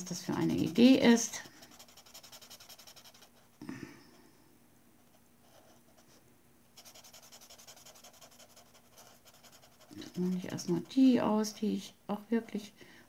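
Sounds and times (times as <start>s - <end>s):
felt-tip pen scratching on paper: 0.3s - 3.4s, 6.8s - 11.2s.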